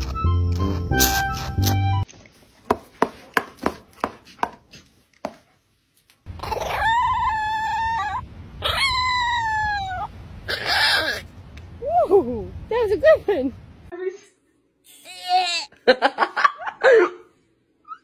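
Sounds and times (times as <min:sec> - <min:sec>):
small dog howling: 0:06.4 - 0:11.3.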